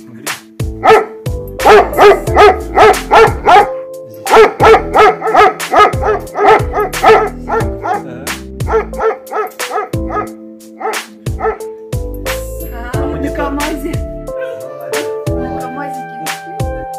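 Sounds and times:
background music sustained notes: 0.0s - 16.9s
dog barking rapidly: 0.8s - 8.0s, 8.7s - 11.6s.

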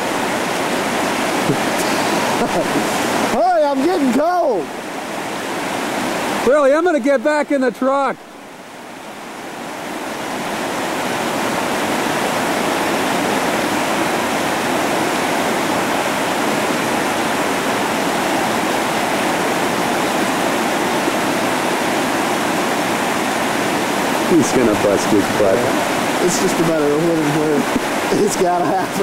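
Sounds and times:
whitewater rapids rushing: 0.0s - 29.0s.

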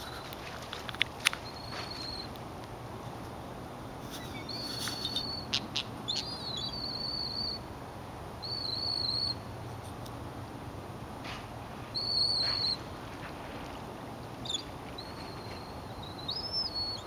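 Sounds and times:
bird whistling: 1.4s - 2.3s, 4.3s - 7.6s, 8.4s - 9.4s, 11.9s - 12.8s, 14.4s - 17.0s.

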